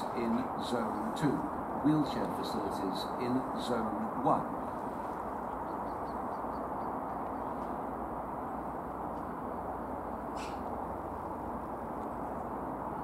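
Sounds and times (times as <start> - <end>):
distant train rumble: 0.0 - 13.0
faint bird chirps: 10.3 - 10.7.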